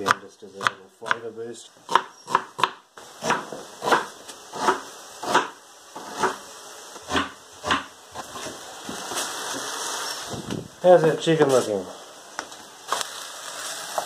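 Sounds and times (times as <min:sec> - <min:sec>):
knife chopping onion on wooden board: 0:00.0 - 0:01.2, 0:01.9 - 0:06.4, 0:07.0 - 0:08.5.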